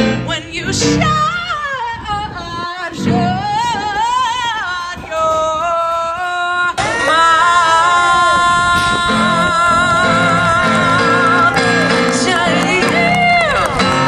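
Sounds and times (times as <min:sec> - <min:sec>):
electric keyboard: 0:00.0 - 0:02.4, 0:03.0 - 0:04.2, 0:06.9 - 0:14.0
woman singing into a microphone: 0:00.0 - 0:14.0.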